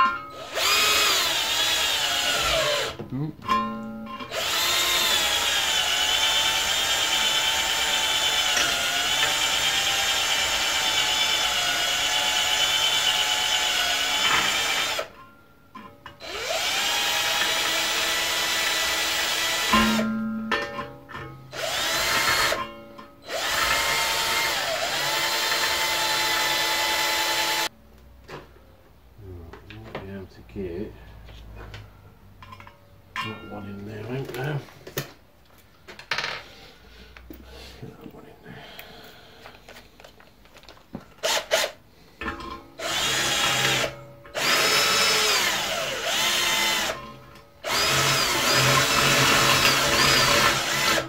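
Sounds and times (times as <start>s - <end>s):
cordless drill grinding steel: 0.3s - 3.0s, 4.2s - 15.2s, 16.2s - 20.2s, 21.5s - 27.7s, 41.2s - 41.8s, 42.8s - 51.0s.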